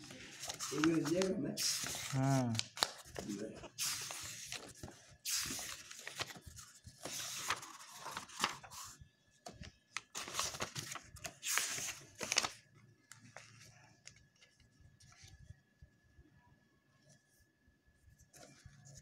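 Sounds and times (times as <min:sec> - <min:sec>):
book pages rustling: 0:00.0 - 0:15.5.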